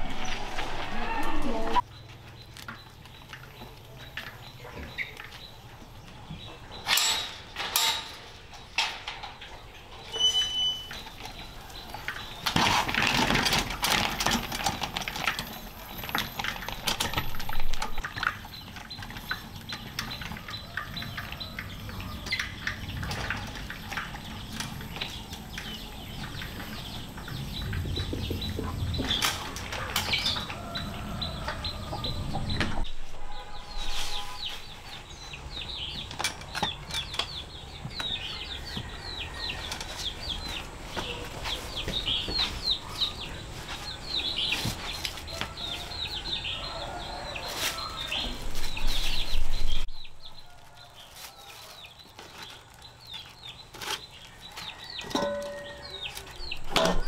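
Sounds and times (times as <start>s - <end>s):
chickens chirping: 0.0s - 7.6s, 8.2s - 57.0s
chickens flapping: 11.9s - 21.5s
knocks and clatter: 12.0s - 30.6s.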